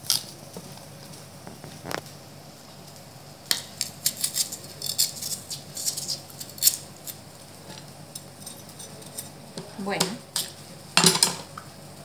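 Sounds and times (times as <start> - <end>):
knife scraping vegetable skin: 3.8 - 7.2.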